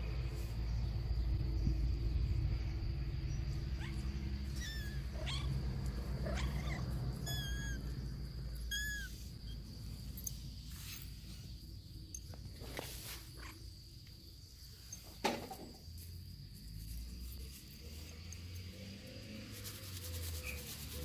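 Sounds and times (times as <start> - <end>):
steady low rumble: 0.0 - 12.5
kitten mewing: 6.3 - 7.8, 8.7 - 9.2.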